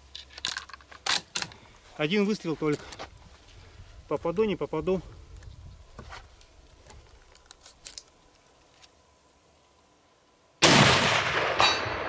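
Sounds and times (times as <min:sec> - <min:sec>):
faint clicks and rustles: 0:00.0 - 0:04.2, 0:04.9 - 0:09.8.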